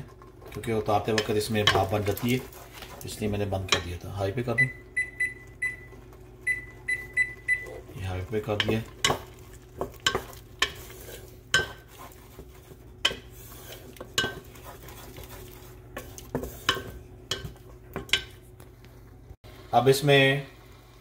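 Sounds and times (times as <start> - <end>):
wooden spatula scraping a pot: 0.0 - 4.1, 7.4 - 18.4
faint sizzle: 0.0 - 21.0.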